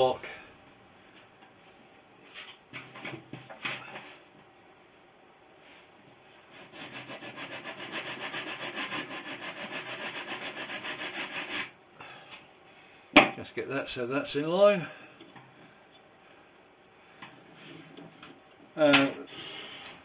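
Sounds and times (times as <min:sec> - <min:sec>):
sanding block rubbing on wood: 0:06.5 - 0:11.7.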